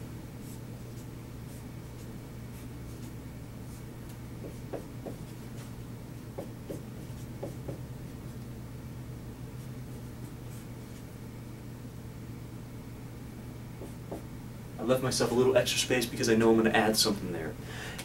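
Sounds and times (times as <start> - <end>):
steady low hum: 0.0 - 18.0
marker writing on whiteboard: 4.4 - 5.4, 6.3 - 7.8, 13.8 - 14.3.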